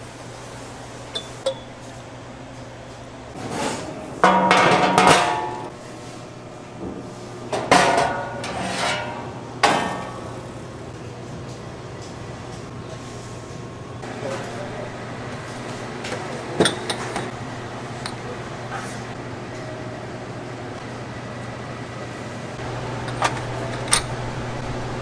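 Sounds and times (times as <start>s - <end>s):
metal bowls and utensils clattering: 3.4s - 5.8s, 7.6s - 10.4s, 16.1s - 17.4s.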